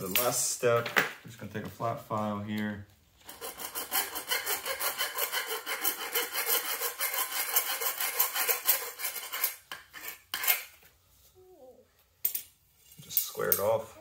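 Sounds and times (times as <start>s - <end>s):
file rasping on tubing: 3.2s - 10.7s.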